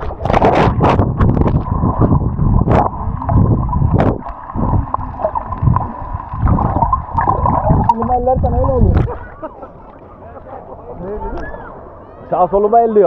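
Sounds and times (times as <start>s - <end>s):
underwater gurgling and bubbling: 0.0s - 9.2s.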